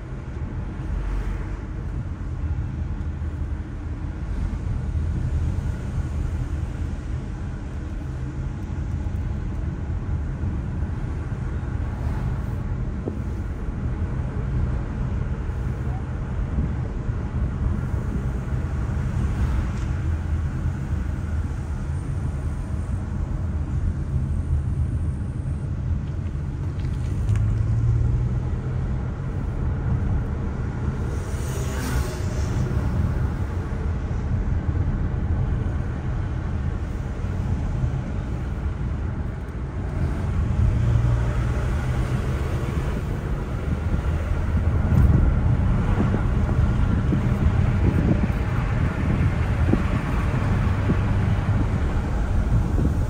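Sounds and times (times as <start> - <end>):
car driving inside cabin: 0.0 - 53.0.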